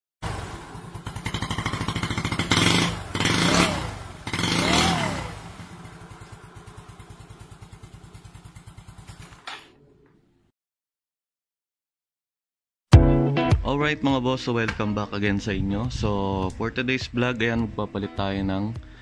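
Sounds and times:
motorcycle engine revving: 0.2s - 9.5s.

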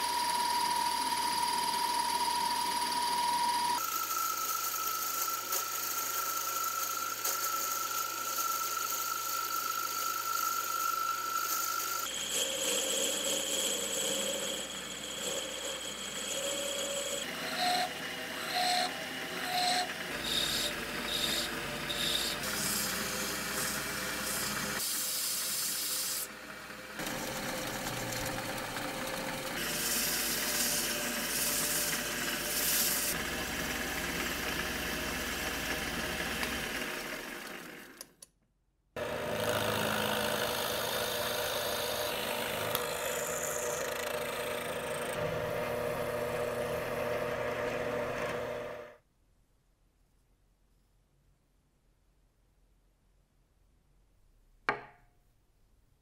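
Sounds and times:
drill press motor humming: 0.0s - 24.8s, 26.3s - 38.2s, 39.0s - 49.0s
drill bit boring into wood: 0.0s - 26.4s, 27.0s - 38.0s, 39.0s - 48.9s
wood lathe spinning: 0.0s - 38.1s, 39.0s - 49.0s
file rasping on wood: 18.5s - 26.2s.

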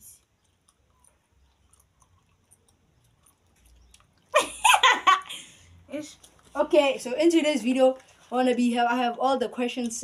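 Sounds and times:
person's voice: 5.9s - 10.0s.

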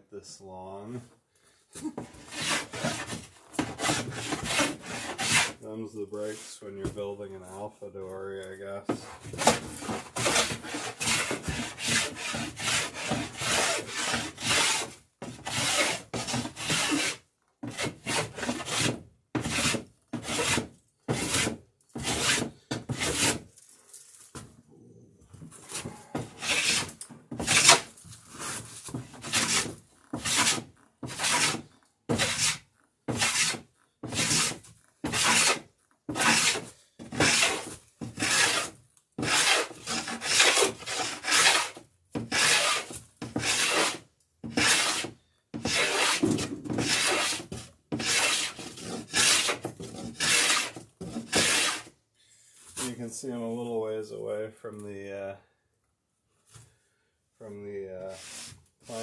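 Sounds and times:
hand plane shaving wood: 2.0s - 5.6s, 9.0s - 23.4s, 25.7s - 51.9s.

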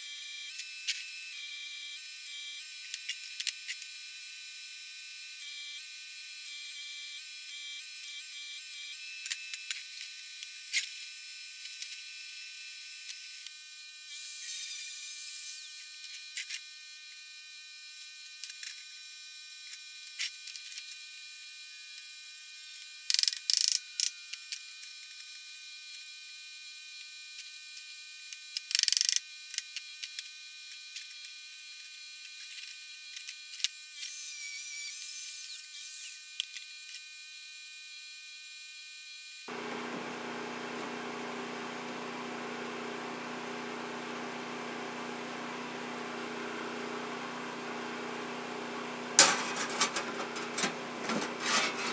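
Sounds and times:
metal parts clicking: 49.2s - 51.9s.

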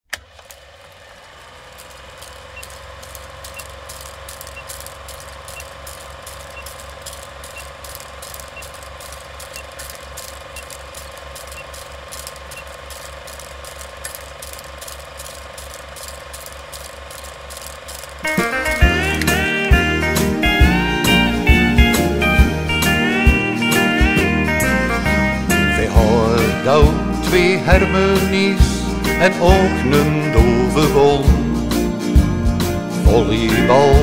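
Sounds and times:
film projector clattering: 0.0s - 23.1s.

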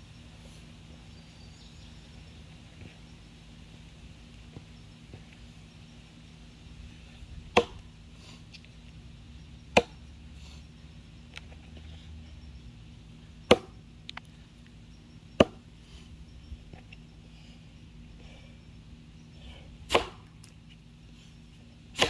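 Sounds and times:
axe chopping into log: 7.5s - 7.9s, 9.7s - 10.0s, 13.5s - 13.8s, 15.4s - 15.6s, 19.9s - 20.3s.

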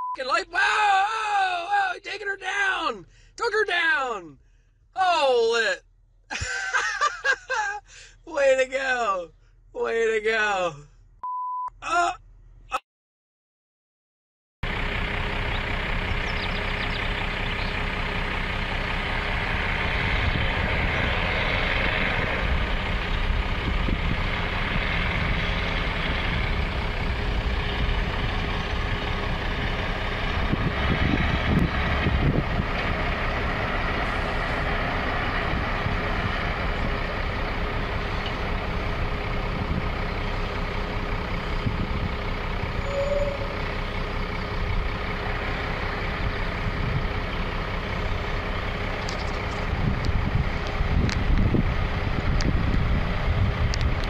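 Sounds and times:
diesel engine running: 0.1s - 3.7s, 4.3s - 9.7s, 14.6s - 54.0s
low rumble: 14.7s - 54.0s.

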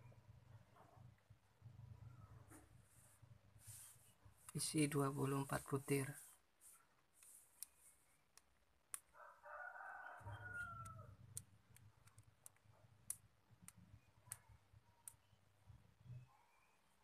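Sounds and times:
wooden beads clicking together: 10.6s - 15.4s.

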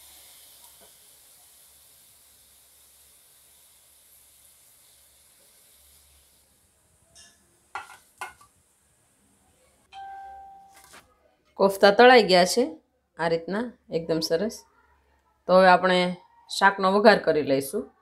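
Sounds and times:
hot oil sizzling: 0.0s - 9.2s
short ringing tone: 10.0s - 10.9s.

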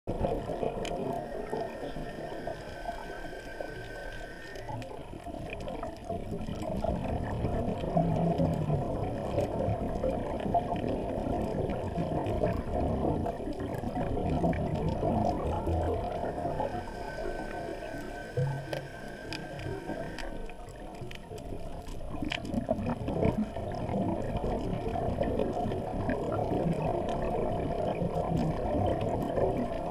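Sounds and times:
faint high whine: 0.1s - 6.2s, 14.0s - 21.3s
underwater low crackling: 0.1s - 29.9s.

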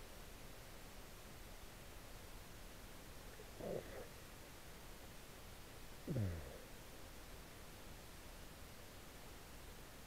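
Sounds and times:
faint steady hiss: 0.0s - 10.0s
short falling vocal sound: 6.0s - 6.7s.

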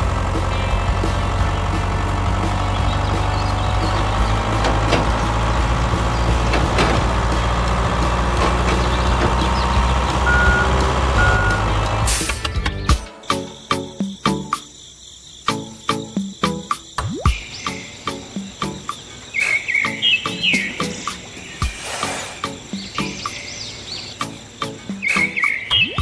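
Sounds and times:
heavy vehicle engine running: 0.0s - 13.0s, 17.7s - 25.0s
short high beeps: 10.3s - 11.7s.

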